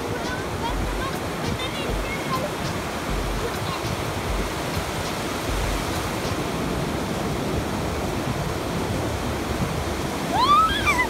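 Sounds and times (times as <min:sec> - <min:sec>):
ocean surf breaking: 0:00.0 - 0:11.0
child crying out: 0:10.3 - 0:11.0.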